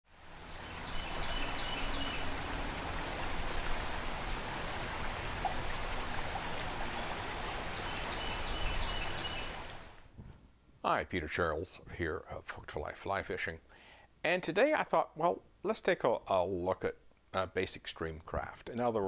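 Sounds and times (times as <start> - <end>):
creek water running over rocks: 0.1 - 10.0.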